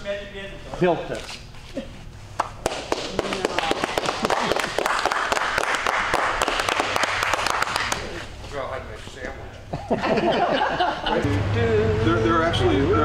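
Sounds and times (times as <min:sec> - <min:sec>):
group of people applauding: 0:02.6 - 0:08.2.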